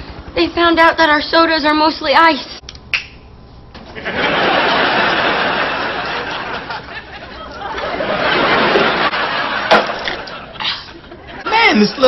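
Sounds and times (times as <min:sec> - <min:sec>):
studio audience laughing: 0:03.9 - 0:12.0.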